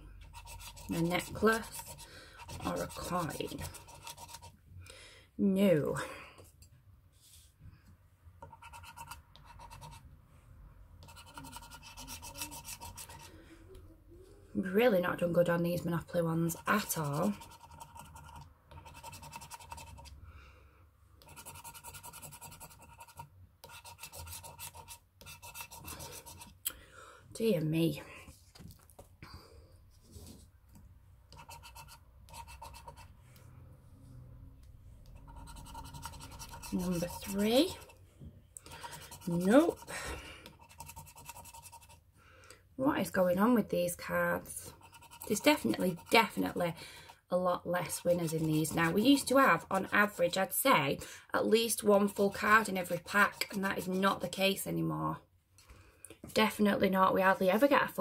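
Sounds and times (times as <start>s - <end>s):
scratch card being scratched: 0.2s - 4.5s, 8.4s - 10.0s, 11.0s - 13.4s, 16.6s - 20.1s, 21.2s - 26.6s, 31.3s - 33.1s, 35.1s - 38.0s, 38.6s - 39.9s, 40.5s - 42.0s, 44.7s - 46.4s, 47.8s - 50.2s, 53.0s - 54.0s.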